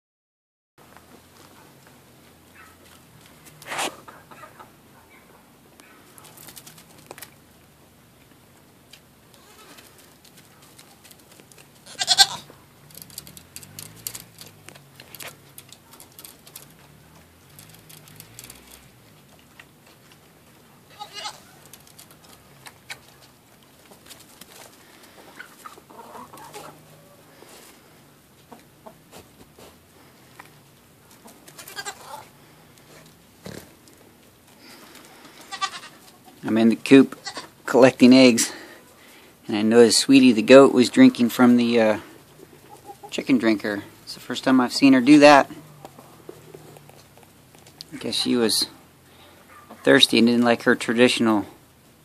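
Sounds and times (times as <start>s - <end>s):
hens clucking softly: 2.6s - 7.1s, 24.6s - 34.0s, 42.0s - 43.2s, 49.2s - 50.0s
young goat bleating: 9.3s - 9.8s, 11.8s - 12.5s, 20.9s - 21.6s, 31.6s - 32.3s, 35.4s - 36.0s, 37.1s - 37.6s
small clicks: 12.9s - 18.9s.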